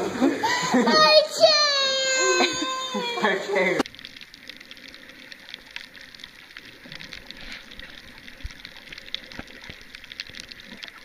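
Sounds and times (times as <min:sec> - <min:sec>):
underwater hiss with crackling clicks: 0:03.8 - 0:11.0.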